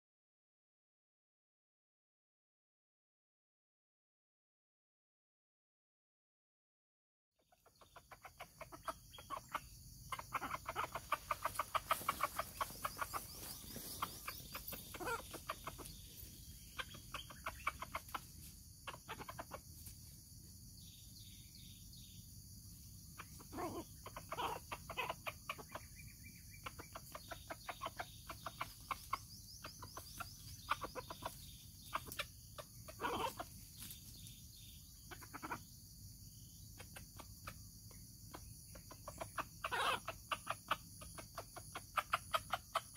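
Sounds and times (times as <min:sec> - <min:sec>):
junglefowl clucking: 0:07.4 - 0:20.1, 0:23.0 - 0:42.9.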